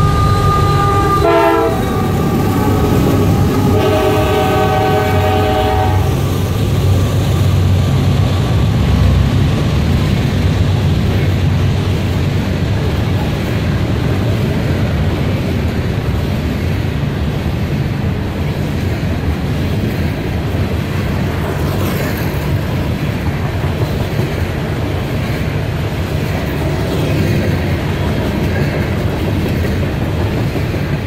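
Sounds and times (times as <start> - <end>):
locomotive air horn: 0.0 - 6.2
train rumble and rail clatter: 0.0 - 31.0.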